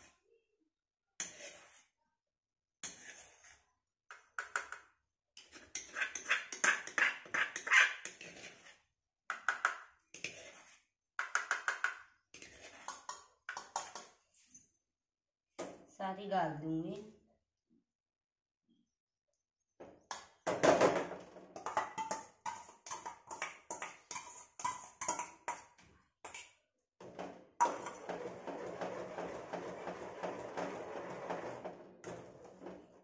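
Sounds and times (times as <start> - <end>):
spoon scraping stone mortar: 1.2 - 2.0, 2.8 - 3.8, 5.4 - 14.2, 21.6 - 26.7.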